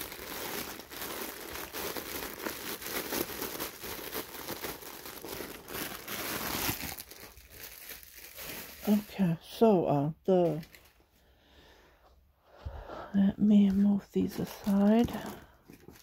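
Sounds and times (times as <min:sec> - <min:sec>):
plastic bag crinkling: 0:00.0 - 0:09.6, 0:10.3 - 0:11.0, 0:13.7 - 0:16.0.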